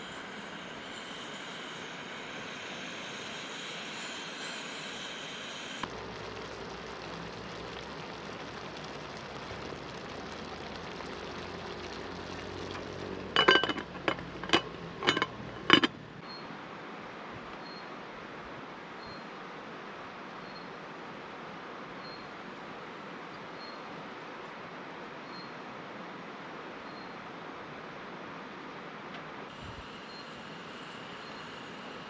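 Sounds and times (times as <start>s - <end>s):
gas stove hissing: 0.0s - 16.0s, 29.6s - 32.0s
pasta boiling: 5.8s - 16.2s
glass lid clinking on pan: 12.7s - 15.9s.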